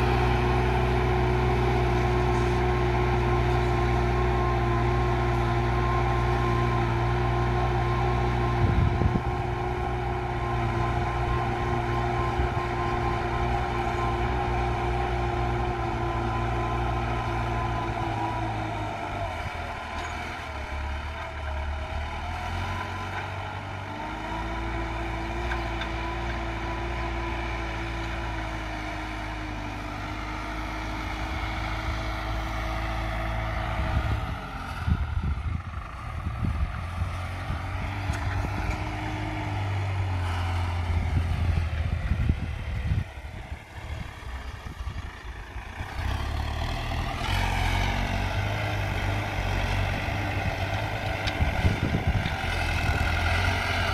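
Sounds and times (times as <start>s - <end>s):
tractor diesel engine under load: 0.0s - 53.9s
low rumbling on microphone: 8.5s - 9.9s, 33.7s - 38.9s, 40.8s - 45.8s, 49.8s - 53.1s.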